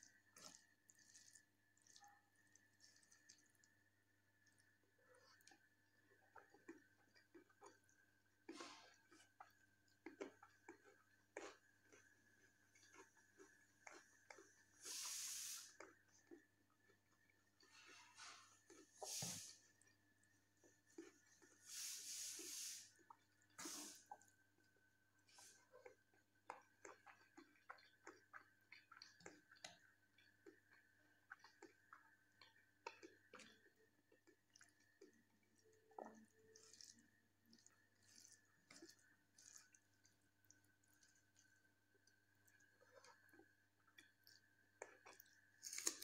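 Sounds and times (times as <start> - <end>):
wet chewing and mouth clicks: 0.0 - 14.8, 15.7 - 21.6, 23.0 - 46.0
burst of hiss: 14.9 - 15.7, 21.7 - 22.9
small crackles: 23.3 - 46.0
fingers squishing food: 25.6 - 46.0.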